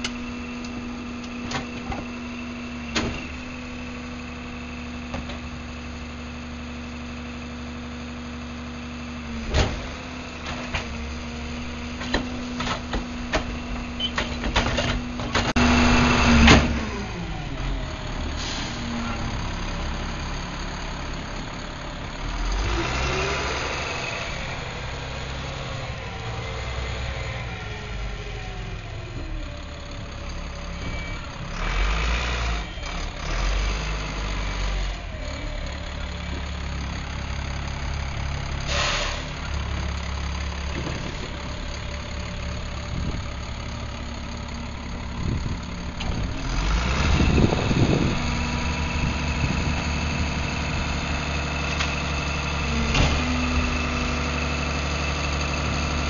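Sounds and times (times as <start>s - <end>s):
diesel truck engine idling: 0.0s - 33.6s, 34.7s - 56.0s
short air hiss: 38.7s - 39.3s.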